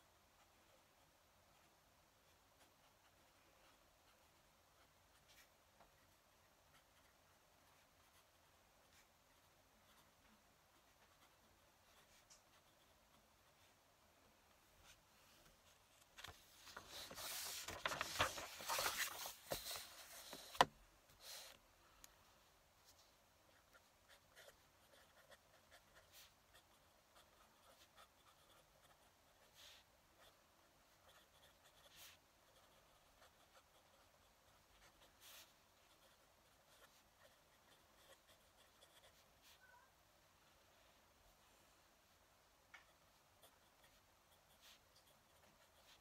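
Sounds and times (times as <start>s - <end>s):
paper rustling and crackling: 16.0s - 20.7s
pen nib scratching paper: 23.5s - 39.6s, 43.4s - 46.0s.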